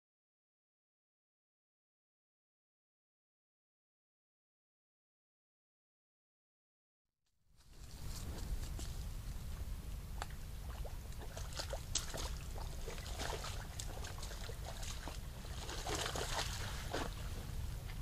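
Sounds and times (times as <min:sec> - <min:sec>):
steady low hum: 0:07.6 - 0:18.0
water splashing and sloshing: 0:07.7 - 0:18.0.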